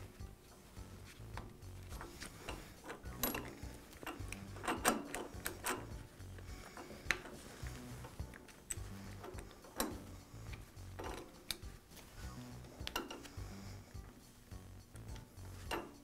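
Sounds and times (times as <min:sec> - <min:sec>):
metallic clicks and knocks: 0:01.3 - 0:11.8, 0:12.6 - 0:13.4, 0:14.9 - 0:16.0.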